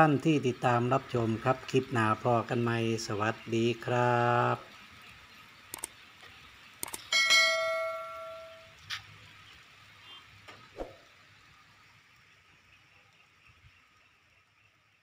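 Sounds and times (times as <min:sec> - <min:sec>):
mouse clicks: 0:05.7 - 0:05.9
bright bell ding: 0:07.1 - 0:08.8.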